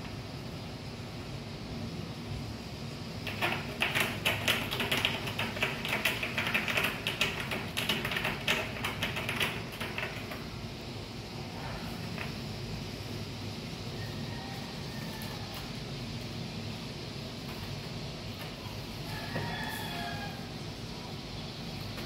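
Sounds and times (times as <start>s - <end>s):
cat scratching cardboard: 3.2s - 10.5s.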